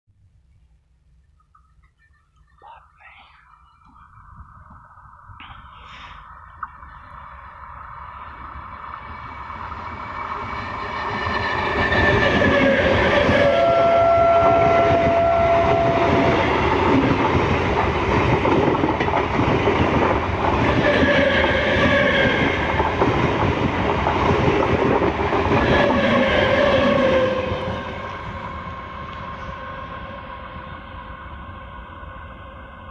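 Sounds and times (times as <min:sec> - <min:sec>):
train horn: 0:10.7 - 0:16.7, 0:25.6 - 0:28.4, 0:29.1 - 0:31.4.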